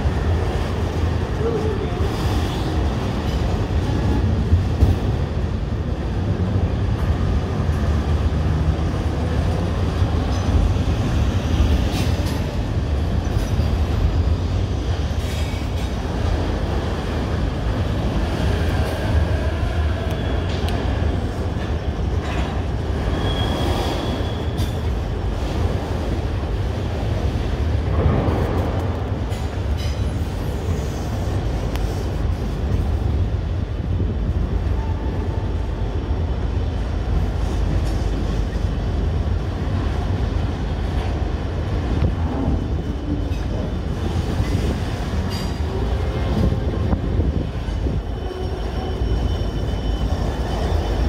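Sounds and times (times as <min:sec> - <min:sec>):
train wheels rumbling: 0:00.0 - 0:51.0
high wheel squeal: 0:23.0 - 0:24.8, 0:47.8 - 0:51.0.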